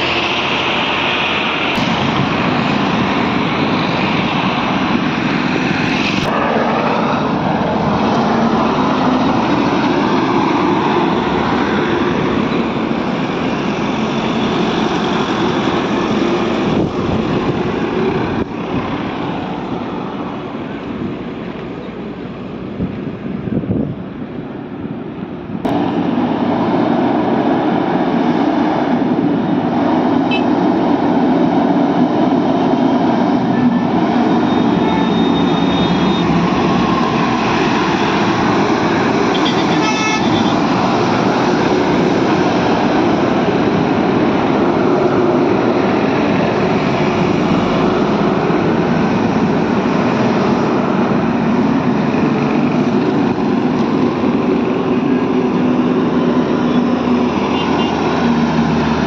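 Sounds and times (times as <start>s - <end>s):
heavy trucks passing: 0.0s - 59.0s
vehicle horn: 30.3s - 30.5s, 39.3s - 40.6s, 57.5s - 58.0s.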